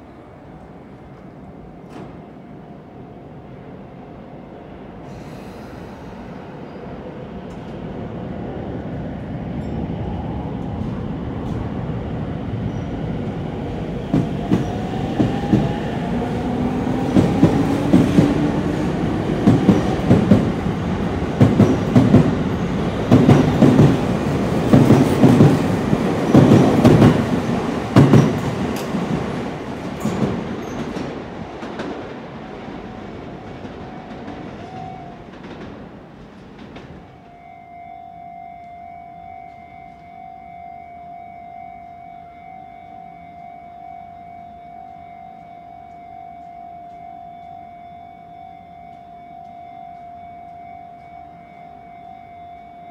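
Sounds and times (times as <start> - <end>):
train wheels clacking over rail joints: 16.9 - 37.3.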